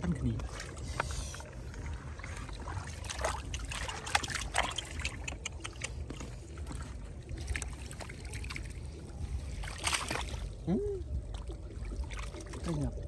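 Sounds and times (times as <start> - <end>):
steady low rumble: 0.0 - 13.0
water splashing and trickling: 0.0 - 13.0.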